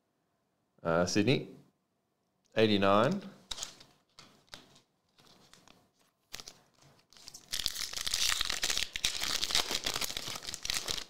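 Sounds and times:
cards being handled: 0:03.0 - 0:11.0
foil wrapper tearing and crinkling: 0:05.2 - 0:11.0.

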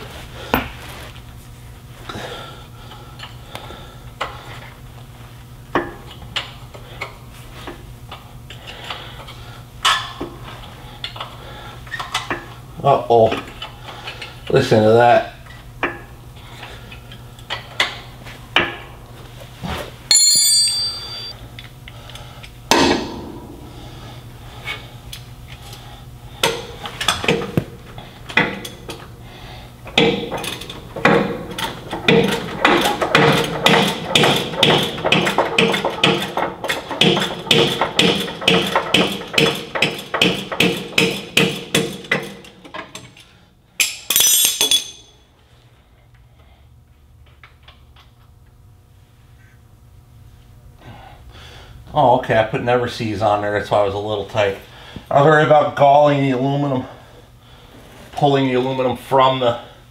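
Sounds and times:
ringing metal clink: 0:20.1 - 0:21.4, 0:43.8 - 0:45.2.

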